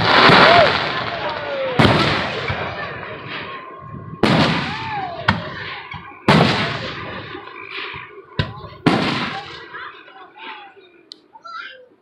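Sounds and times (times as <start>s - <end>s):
sharp firework cracks: 0.0s - 2.8s, 4.2s - 9.8s
firework booms: 0.0s - 9.9s.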